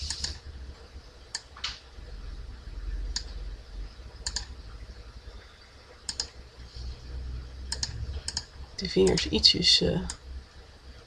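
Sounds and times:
computer mouse clicking: 0.0s - 0.4s, 3.1s - 3.4s, 4.2s - 4.5s, 6.0s - 6.4s, 7.7s - 9.4s
low steady hum: 0.0s - 11.0s.

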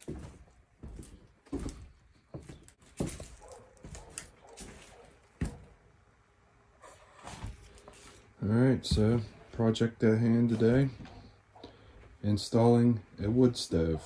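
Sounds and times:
footsteps: 0.0s - 5.8s, 6.9s - 9.6s, 10.4s - 12.2s.

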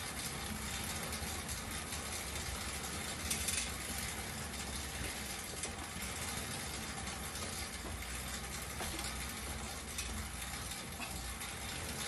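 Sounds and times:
exercise bike fan whirring: 0.0s - 12.0s.

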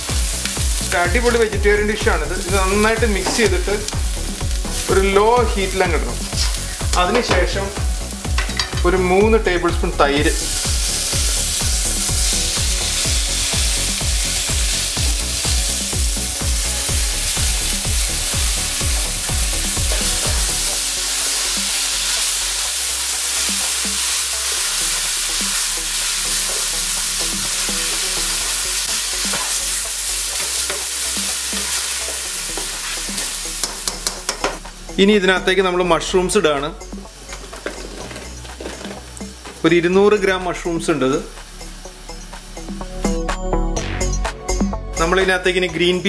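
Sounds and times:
masala sizzling in a frying pan: 0.0s - 9.2s, 10.1s - 35.0s, 37.1s - 42.8s
spatula stirring: 10.3s - 34.6s.

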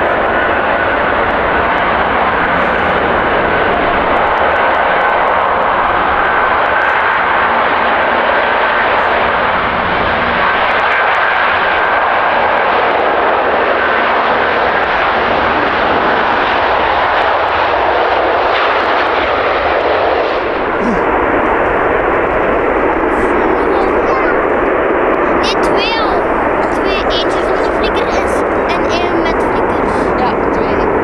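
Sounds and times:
faint high engine whine: 0.0s - 31.0s
jet engines roaring at takeoff: 0.0s - 31.0s.

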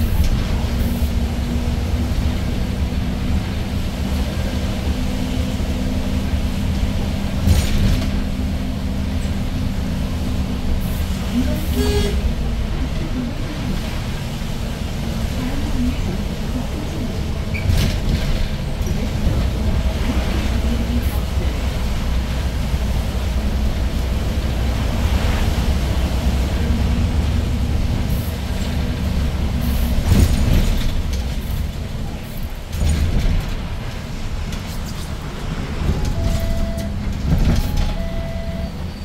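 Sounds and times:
bus engine running: 0.0s - 39.0s
tyres hissing on wet road: 9.4s - 17.0s.

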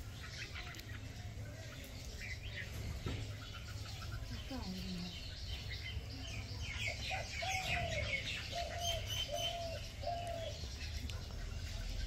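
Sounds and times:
small birds chirping: 0.0s - 12.0s
dove cooing: 6.8s - 10.8s.

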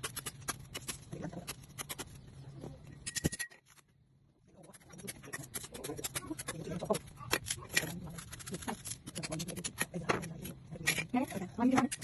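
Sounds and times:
knife cutting banana stalk: 0.0s - 2.2s.

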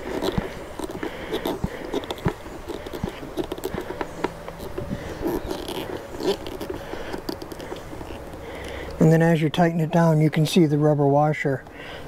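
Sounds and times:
screwdriver clicking and scraping: 0.0s - 8.4s.

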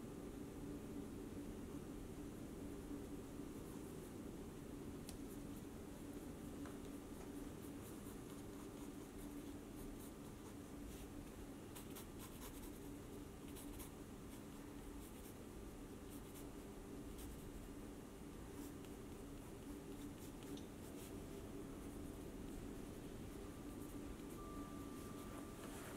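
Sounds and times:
low hum: 20.6s - 25.9s.

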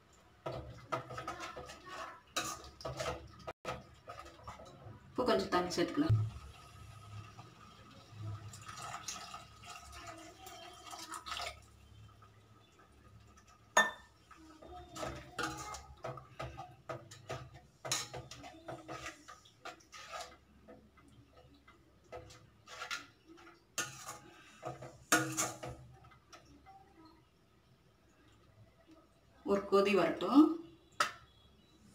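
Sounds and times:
spatula scraping metal pan: 0.5s - 4.8s, 14.6s - 20.8s, 22.1s - 25.9s.

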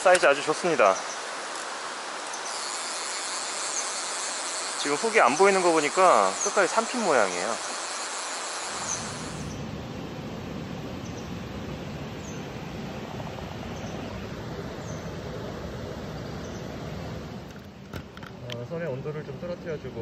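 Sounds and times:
water rushing over rocks: 0.0s - 9.5s.

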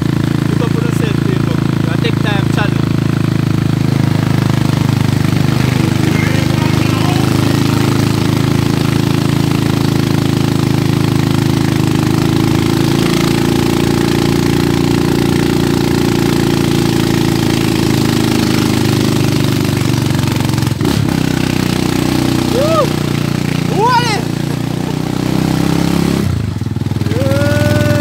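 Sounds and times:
small motorcycle engine running: 0.0s - 28.0s.

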